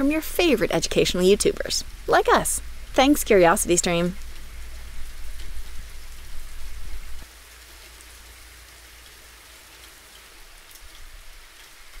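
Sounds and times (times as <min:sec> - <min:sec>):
low rumble: 0:00.0 - 0:07.2
steady rain: 0:00.0 - 0:12.0.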